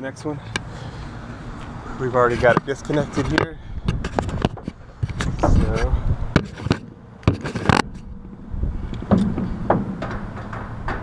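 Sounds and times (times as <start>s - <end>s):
wind buffeting microphone: 1.3s - 11.0s
tool scraping: 2.2s - 8.1s.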